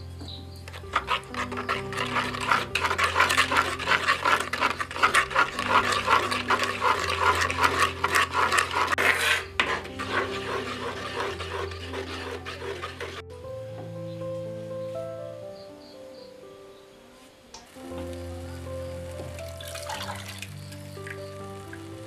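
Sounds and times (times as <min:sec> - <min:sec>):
background music with held notes: 0:00.0 - 0:22.0
spoon scraping and clinking bowl: 0:00.7 - 0:13.2, 0:19.6 - 0:20.5.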